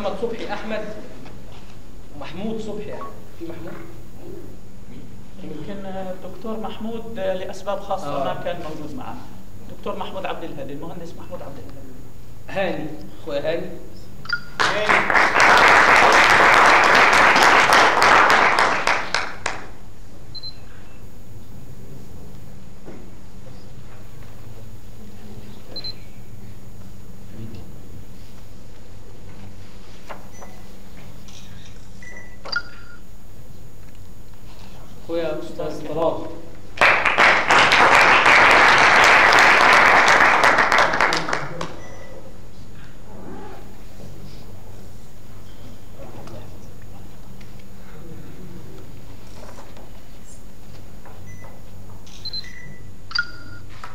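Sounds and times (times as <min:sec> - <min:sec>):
audience applauding: 0:14.6 - 0:19.7, 0:36.8 - 0:41.8.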